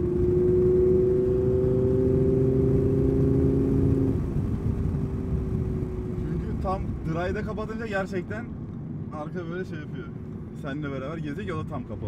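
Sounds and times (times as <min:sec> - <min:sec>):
car engine accelerating: 0:00.0 - 0:07.5.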